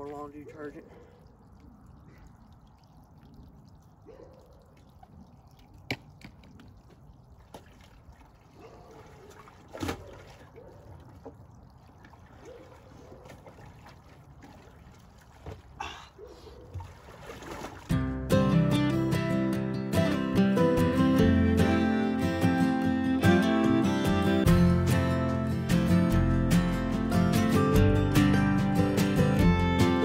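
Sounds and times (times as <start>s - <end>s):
water sloshing in a barrel: 0.0s - 18.0s.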